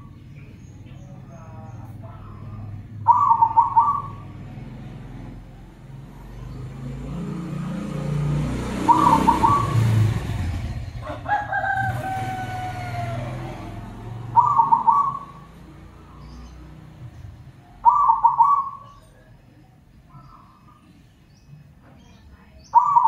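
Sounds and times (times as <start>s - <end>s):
dove chattering coo: 0.0s - 19.4s, 22.1s - 23.0s
rooster crowing: 11.0s - 15.3s.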